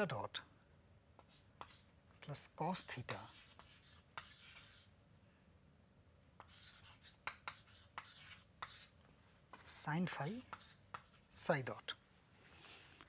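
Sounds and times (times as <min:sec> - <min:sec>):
chalk tapping on board: 0:01.2 - 0:01.9, 0:03.2 - 0:04.8, 0:06.4 - 0:11.3
chalk scratching on chalkboard: 0:01.2 - 0:04.9, 0:06.4 - 0:11.5.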